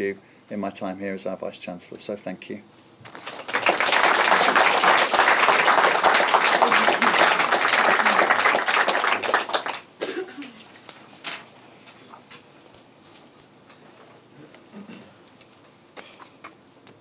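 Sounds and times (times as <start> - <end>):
audience applauding: 3.2 - 9.9.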